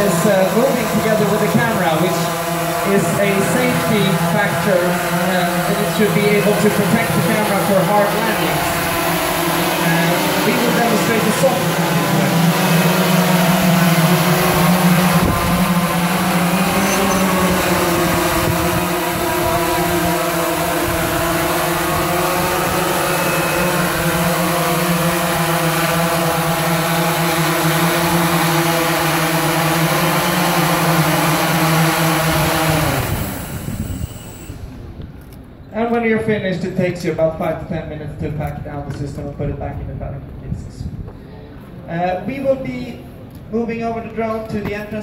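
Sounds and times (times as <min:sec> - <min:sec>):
drone rotors buzzing: 0:00.0 - 0:35.6.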